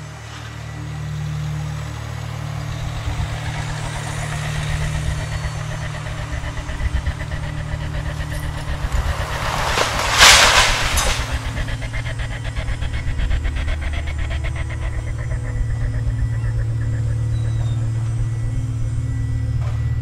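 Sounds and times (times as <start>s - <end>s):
excavator diesel engine running: 0.0s - 20.0s
masonry crunching and scraping: 7.7s - 12.2s
rubble crashing down: 7.7s - 12.2s.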